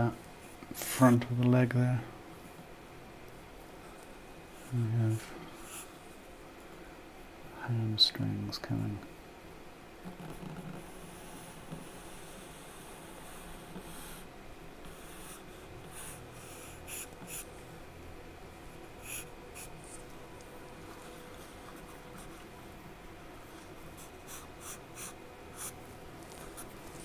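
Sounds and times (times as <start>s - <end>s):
charcoal scratching on paper: 10.2s - 17.5s, 23.9s - 27.0s.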